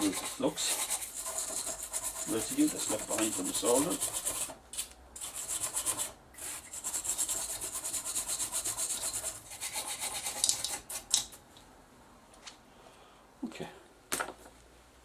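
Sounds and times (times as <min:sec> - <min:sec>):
brush scrubbing circuit board: 0:00.0 - 0:04.5, 0:05.2 - 0:11.2.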